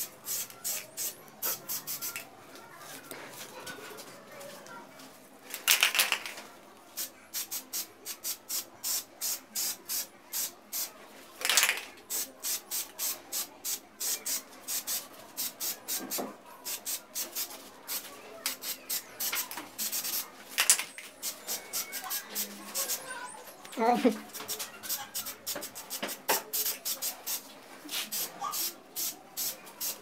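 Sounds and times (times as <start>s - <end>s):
spray can hissing: 0.0s - 2.2s, 7.0s - 23.0s, 24.4s - 30.0s.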